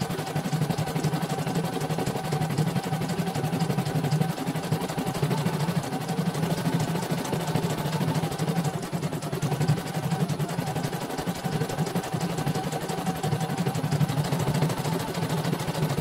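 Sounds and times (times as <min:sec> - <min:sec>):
embroidery machine stitching: 0:00.0 - 0:16.0.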